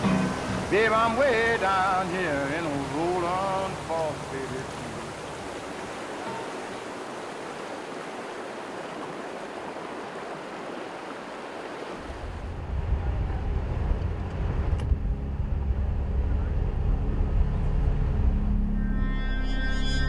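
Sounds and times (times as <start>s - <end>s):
river water rushing over rocks: 0.0s - 12.5s
vehicle engine rumbling: 12.6s - 18.9s.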